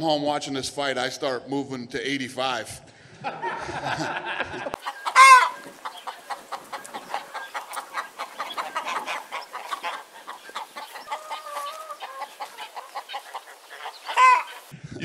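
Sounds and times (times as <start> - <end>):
chickens clucking: 4.4 - 14.8.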